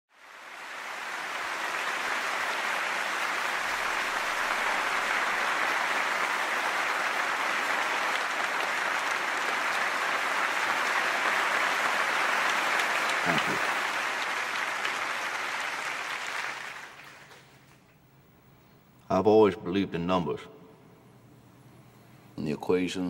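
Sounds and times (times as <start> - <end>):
large audience applauding: 0.1 - 17.8.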